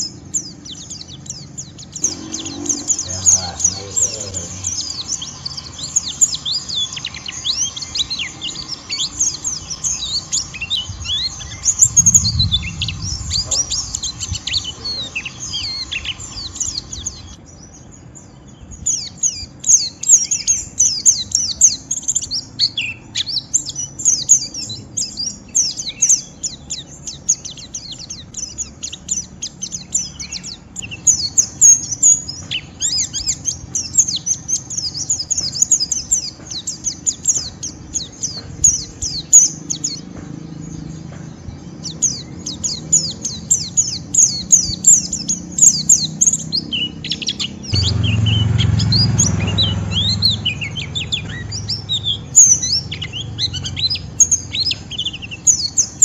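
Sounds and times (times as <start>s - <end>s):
birds twittering high chirps: 0.0s - 56.0s
low thump: 47.7s - 50.2s.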